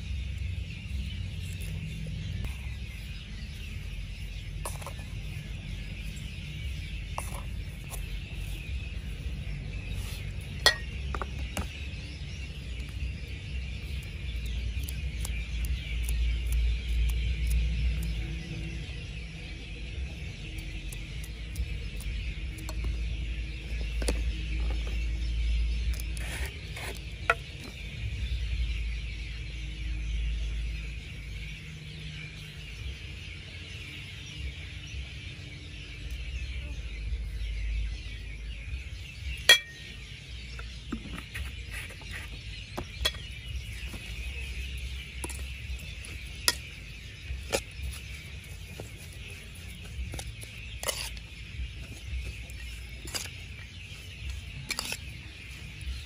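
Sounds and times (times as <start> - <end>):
utensils clinking against metal: 39.4 - 39.9.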